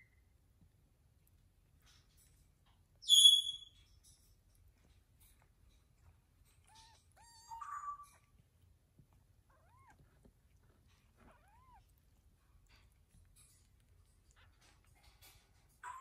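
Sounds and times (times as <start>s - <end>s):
kittens mewing softly: 9.3s - 16.0s.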